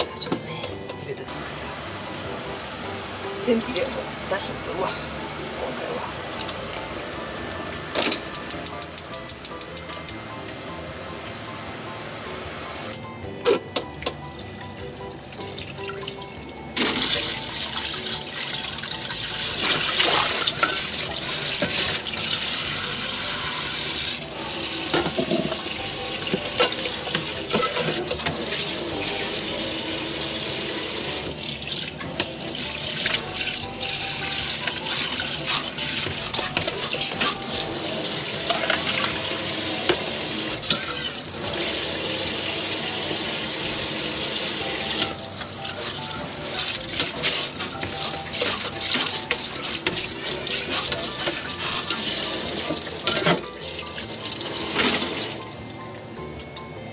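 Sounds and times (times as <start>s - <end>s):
tap water running into metal sink: 23.7s - 55.8s
dishes clattering: 52.7s - 53.5s.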